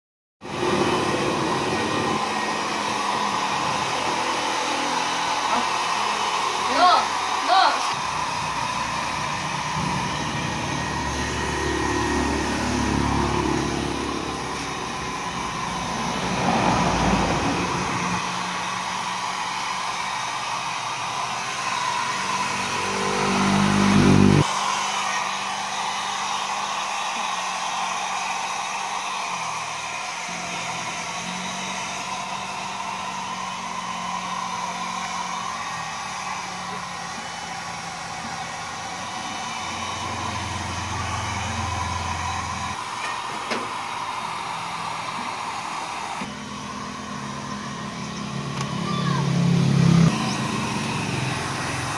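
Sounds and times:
hair dryer blowing: 0.4s - 51.9s
low buzz: 21.1s - 25.0s.

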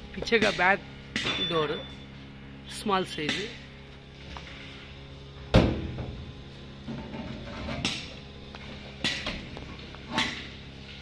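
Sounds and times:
sharp metal clanks: 0.4s - 2.0s.

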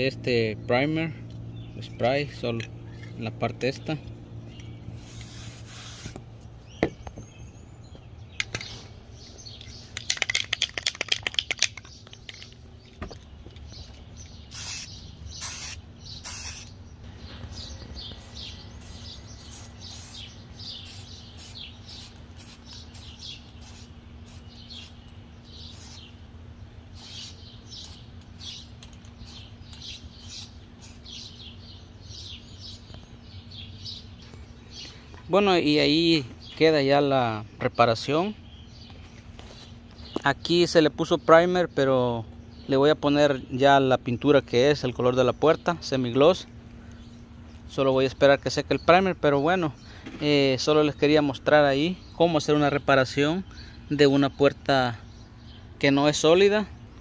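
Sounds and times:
hissing spray bursts: 5.0s - 6.3s, 14.5s - 25.0s, 25.6s - 26.1s, 26.9s - 28.6s, 29.2s - 31.3s
aerosol can ball rattling: 9.6s - 12.6s.

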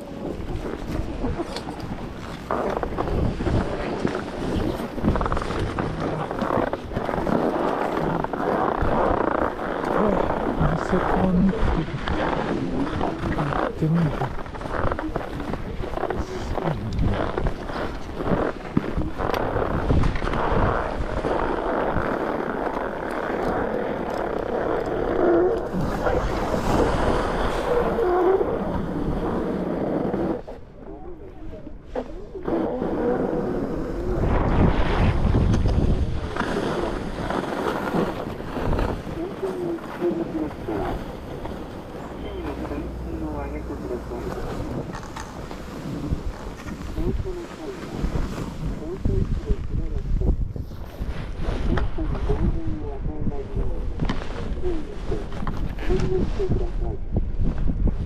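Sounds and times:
wind buffeting microphone: 0.0s - 58.0s
faint pitched sounds: 22.8s - 50.4s.

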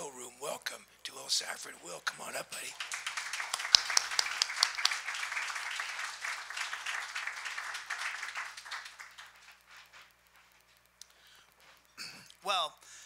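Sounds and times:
audience applauding: 2.6s - 9.9s.

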